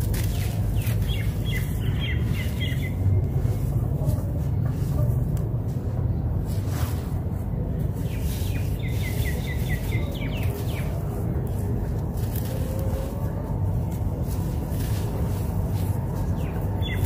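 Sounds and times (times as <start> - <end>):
low rumble: 0.0 - 17.0
bird chirping: 0.3 - 3.2, 8.0 - 11.1, 16.2 - 17.0.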